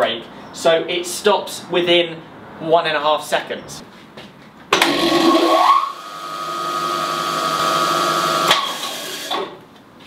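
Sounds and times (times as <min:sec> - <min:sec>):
bandsaw motor whine and hum: 0:04.9 - 0:09.6.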